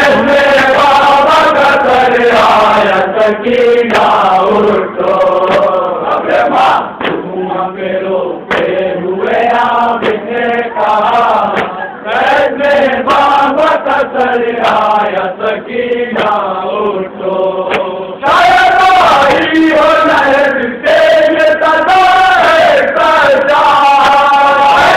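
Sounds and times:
men chanting a lament: 0.0s - 24.9s
hands slapping chests: 5.4s - 5.8s, 6.4s - 7.3s, 8.5s - 8.8s, 11.4s - 11.8s, 16.1s - 16.4s, 17.6s - 17.9s.

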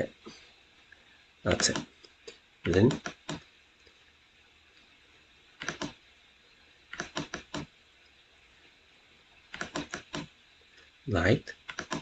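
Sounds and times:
computer mouse or key clicks: 2.9s - 3.4s, 5.6s - 6.0s, 6.9s - 7.7s, 9.5s - 10.3s, 11.7s - 12.0s.

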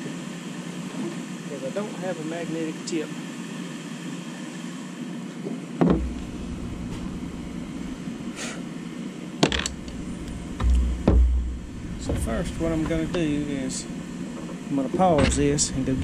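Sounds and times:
steady background hum: 0.0s - 16.0s
knocks on plastic deck: 10.6s - 11.5s.

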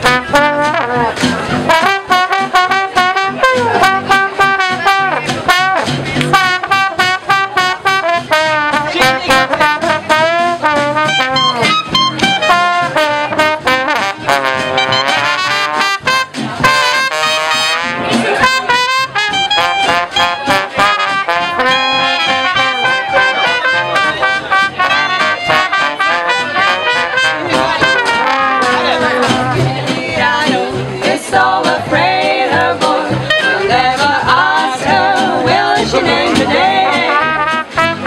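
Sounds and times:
jazz band playing swing: 0.0s - 38.0s.

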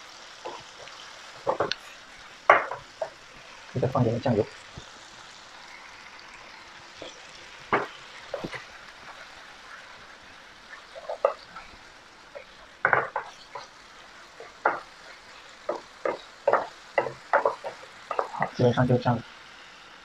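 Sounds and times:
food sizzling in a wok: 0.0s - 20.0s
wooden spatula scraping a pan: 7.0s - 9.8s, 10.8s - 11.7s, 12.4s - 18.6s.

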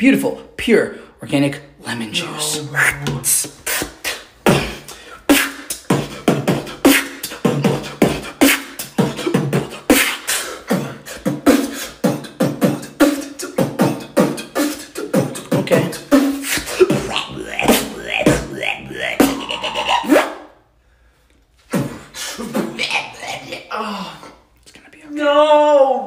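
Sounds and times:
person beatboxing: 2.2s - 20.5s, 21.7s - 25.0s.

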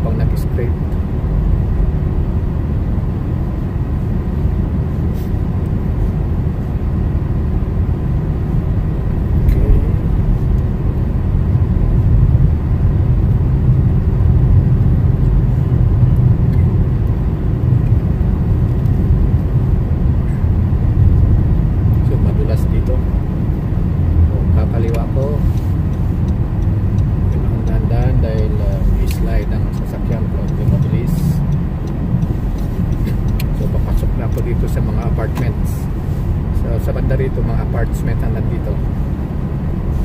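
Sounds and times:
tyres and engine rumbling: 0.0s - 40.0s
faint ticks: 24.9s - 35.5s.

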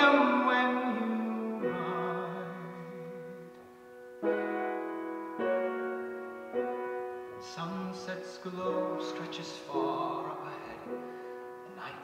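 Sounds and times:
man singing with vibrato: 0.0s - 3.6s, 7.4s - 12.0s
piano: 0.0s - 12.0s.

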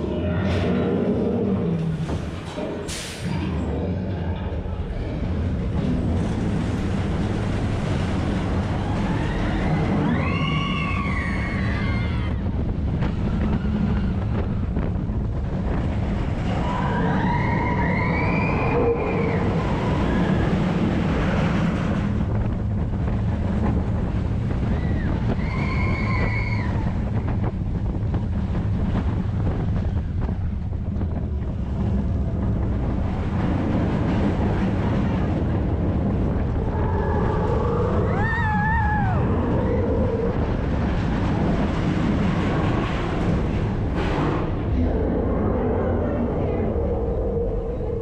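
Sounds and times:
roller coaster wheels rumbling: 0.0s - 48.0s
wind buffeting microphone: 4.5s - 48.0s
riders screaming: 8.8s - 12.5s, 36.7s - 40.4s.

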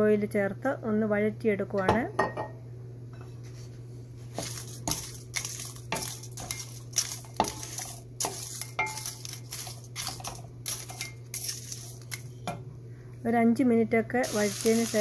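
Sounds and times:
steady low hum: 0.0s - 15.0s
wooden spatula scraping a pan: 3.4s - 12.4s.

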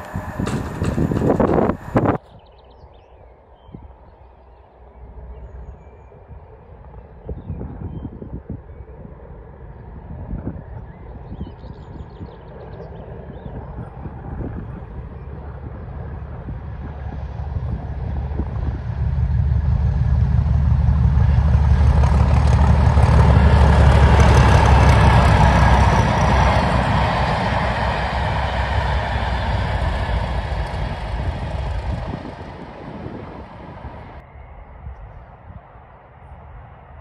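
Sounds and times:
diesel locomotive engine working hard: 0.0s - 2.2s, 9.5s - 34.3s.

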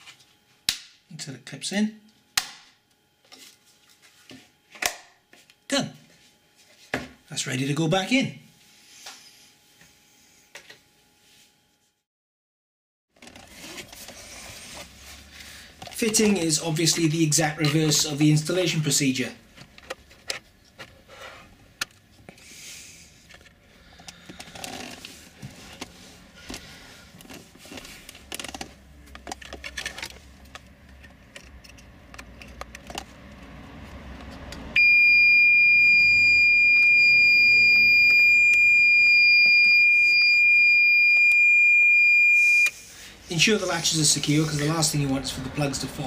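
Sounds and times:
plastic clicks and rustling: 27.2s - 33.1s
high-pitched electronic beep: 34.8s - 42.7s.

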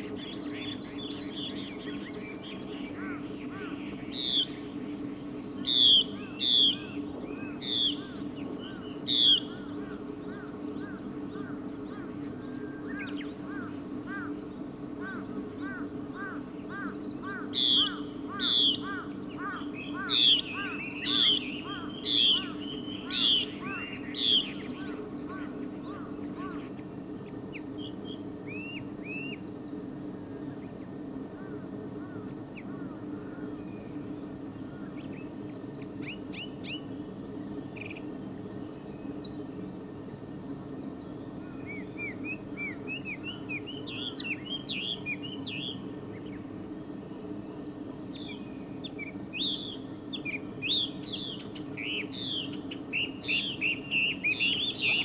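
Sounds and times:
steady low hum: 0.0s - 55.0s
bird whistled song: 4.0s - 4.7s, 5.6s - 9.7s, 17.6s - 19.0s, 27.8s - 29.6s, 41.4s - 46.4s, 48.2s - 55.0s.

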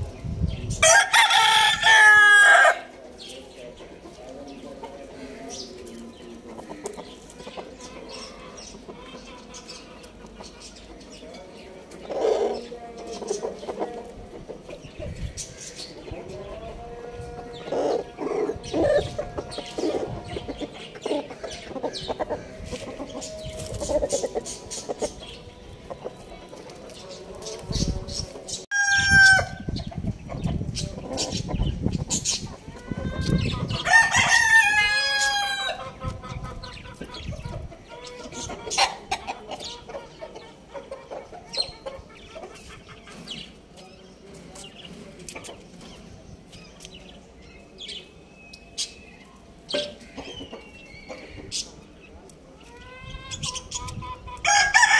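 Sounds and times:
rooster crowing: 0.8s - 2.9s, 33.8s - 35.8s, 54.4s - 54.9s.

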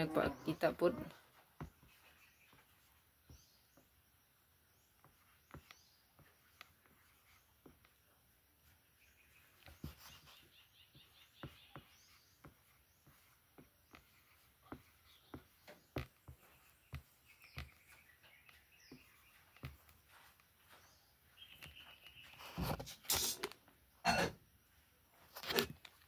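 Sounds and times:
high bird chirps: 8.8s - 22.6s.

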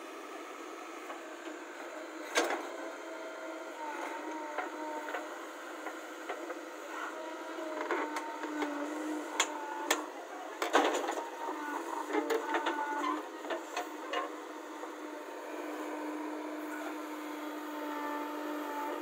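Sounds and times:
backhoe engine and hydraulics: 0.0s - 19.0s.

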